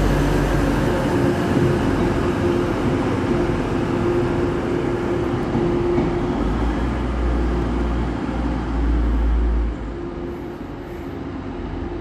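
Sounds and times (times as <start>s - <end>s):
train diesel engine running: 0.0s - 12.0s.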